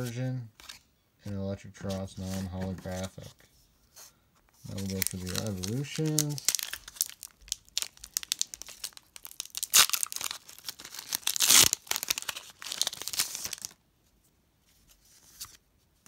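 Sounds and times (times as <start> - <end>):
foil tearing: 4.7 - 13.8
foil wrapper crinkling: 4.7 - 13.8.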